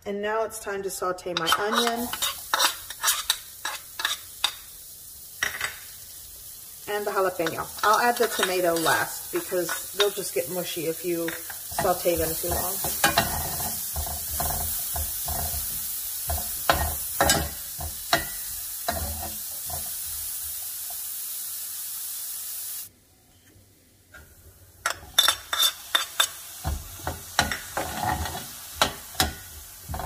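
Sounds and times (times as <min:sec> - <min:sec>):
spatula scraping and clacking pan: 0:01.3 - 0:04.6, 0:07.3 - 0:20.0, 0:24.8 - 0:30.0
vegetables sizzling in oil: 0:01.3 - 0:22.9, 0:24.2 - 0:30.0.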